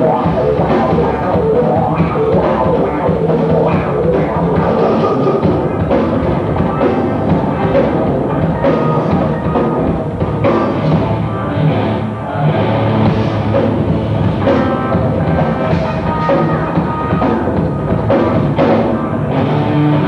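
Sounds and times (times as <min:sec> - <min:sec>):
live rock band playing: 0:00.0 - 0:20.0.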